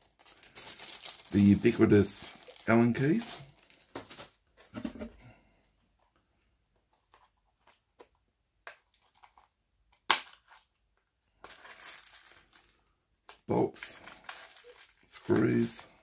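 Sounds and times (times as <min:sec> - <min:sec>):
plastic packaging crinkling: 0:00.0 - 0:04.3, 0:11.4 - 0:16.0.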